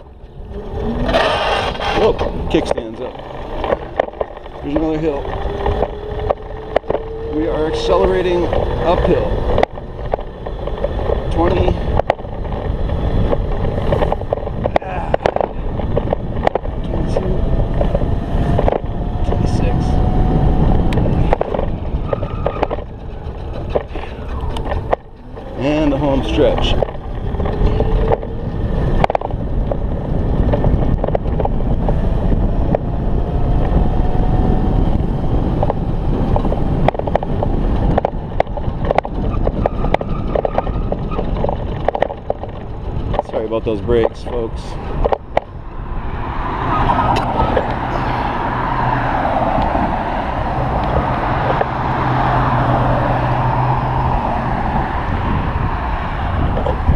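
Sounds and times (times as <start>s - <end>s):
sharp clicks and knocks: 0.0s - 19.6s, 20.8s - 33.9s, 34.8s - 45.6s, 48.5s - 54.2s
tyre rumble: 0.0s - 19.8s
electric scooter riding noise: 0.0s - 56.9s
wind buffeting microphone: 0.0s - 56.9s.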